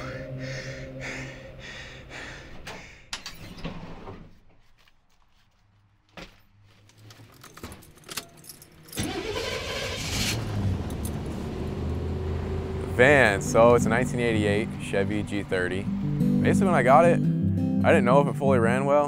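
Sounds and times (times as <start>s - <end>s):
keys jangling: 7.1s - 9.1s
van engine cranking and starting: 8.7s - 16.4s.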